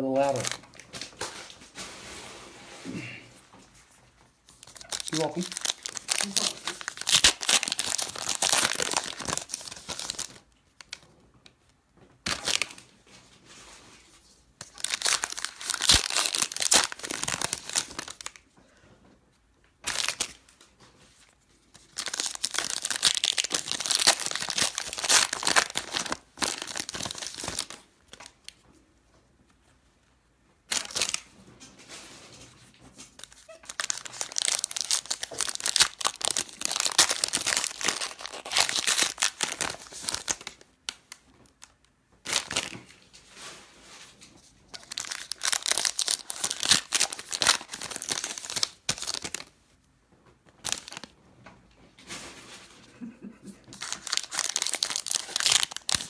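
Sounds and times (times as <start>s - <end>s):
plastic wrapping tearing and crinkling: 0.2s - 2.2s, 3.8s - 11.1s, 12.2s - 13.0s, 14.2s - 18.4s, 19.8s - 28.6s, 30.7s - 31.3s, 33.0s - 43.3s, 44.0s - 49.6s, 50.5s - 51.2s, 53.7s - 56.0s.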